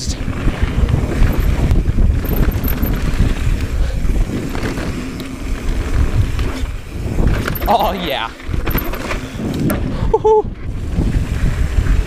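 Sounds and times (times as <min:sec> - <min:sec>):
low tyre rumble: 0:00.0 - 0:12.0
wind rushing over microphone: 0:00.0 - 0:12.0
bike knocks and rattles: 0:00.4 - 0:10.0.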